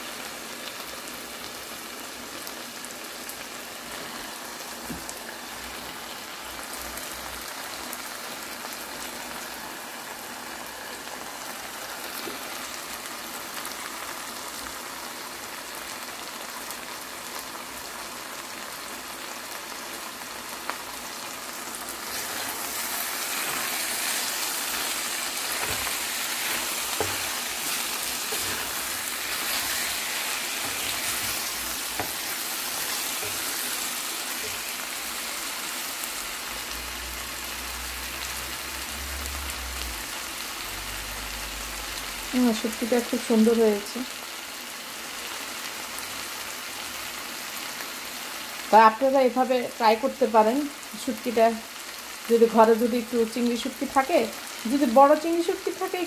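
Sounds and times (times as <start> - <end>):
crackling sizzle of frying food: 0.0 - 56.0.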